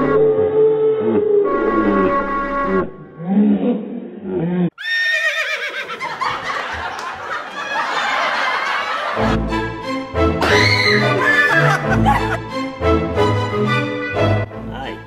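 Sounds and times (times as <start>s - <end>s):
sound effect: 0.0s - 4.7s
music: 9.2s - 15.0s
woman shrieking with laughter: 10.4s - 12.4s.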